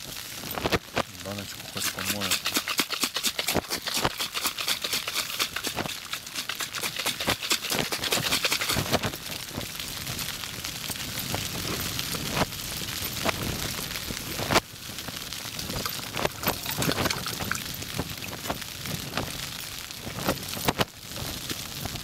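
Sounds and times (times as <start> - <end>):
rustling hiss: 0.0 - 22.0
plastic container rattling: 1.6 - 9.1, 15.8 - 17.8.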